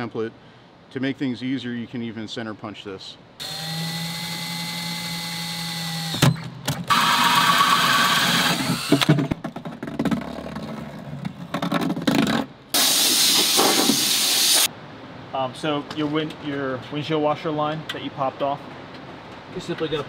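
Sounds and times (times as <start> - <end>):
drill whining: 3.4 - 9.1, 12.8 - 14.7
hole saw cutting plastic: 3.4 - 9.2
loud hiss: 12.7 - 14.7.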